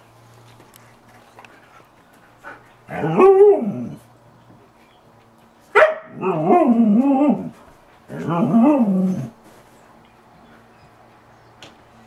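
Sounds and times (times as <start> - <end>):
dog whine-howling: 6.2 - 7.6.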